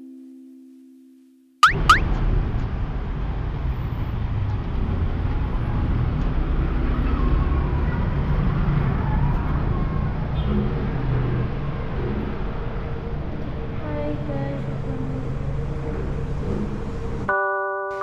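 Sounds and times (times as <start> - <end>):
sharp sweeping chirps: 1.6 - 2.0
road traffic rumble: 1.8 - 17.3.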